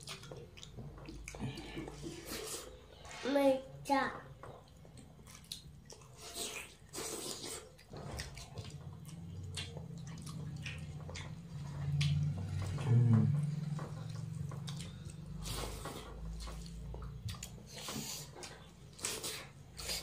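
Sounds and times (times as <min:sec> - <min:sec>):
wet chewing and lip-smacking: 0:00.0 - 0:02.8, 0:04.5 - 0:20.0
steady low hum: 0:08.9 - 0:17.6.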